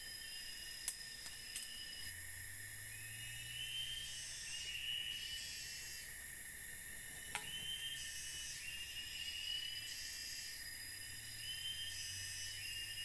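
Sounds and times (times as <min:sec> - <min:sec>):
insects calling in chorus: 0:00.0 - 0:13.0.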